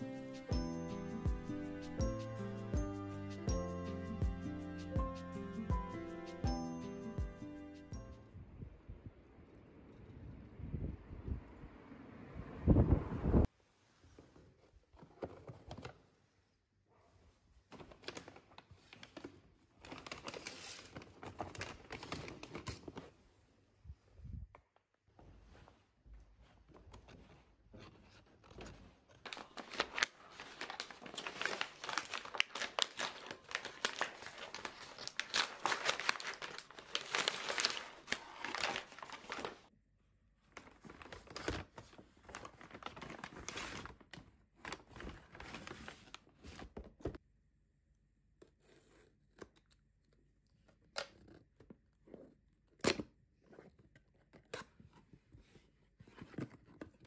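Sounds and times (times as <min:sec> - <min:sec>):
paper rustling: 0:17.7 - 0:23.2, 0:25.2 - 0:39.7, 0:40.5 - 0:47.2
paper bag tearing and crinkling: 0:29.2 - 0:39.7.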